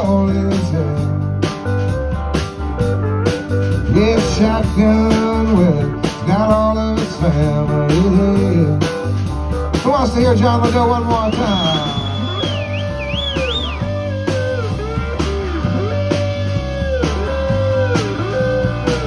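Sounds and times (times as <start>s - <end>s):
bass line: 0.0s - 19.0s
drum kit: 0.0s - 19.0s
electric guitars: 0.0s - 19.0s
guitar lead line bending in pitch: 11.1s - 19.0s.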